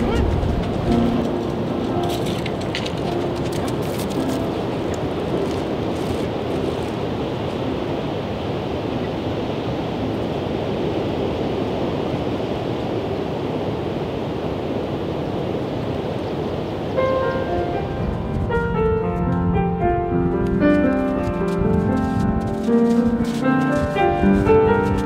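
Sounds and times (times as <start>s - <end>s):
surf breaking on beach: 0.0s - 25.0s.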